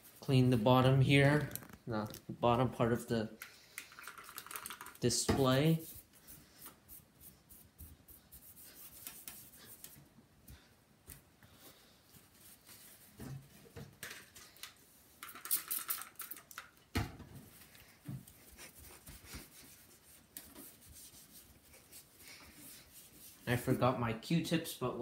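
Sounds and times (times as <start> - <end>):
paper towel rubbing on monitor: 18.3 - 23.8.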